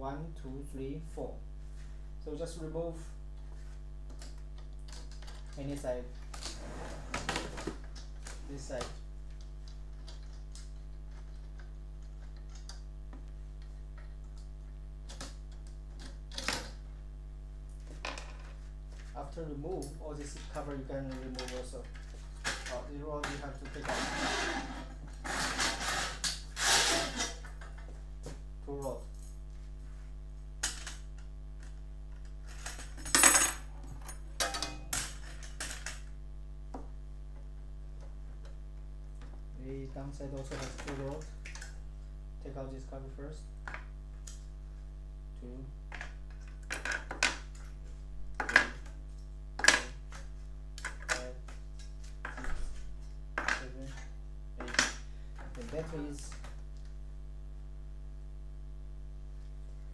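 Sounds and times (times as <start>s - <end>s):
low electrical hum: 0.0s - 59.9s.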